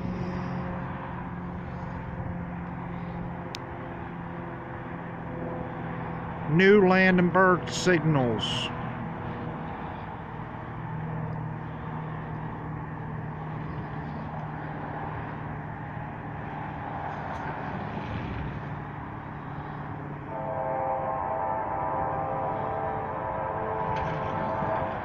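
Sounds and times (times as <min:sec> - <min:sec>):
freight train rumble: 0:00.0 - 0:25.0
locomotive air horn chord: 0:20.2 - 0:25.0.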